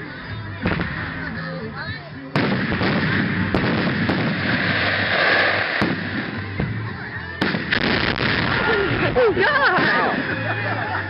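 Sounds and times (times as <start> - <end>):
firework bangs: 0.6 - 1.3, 2.3 - 10.5
fireworks crackling: 0.6 - 11.0.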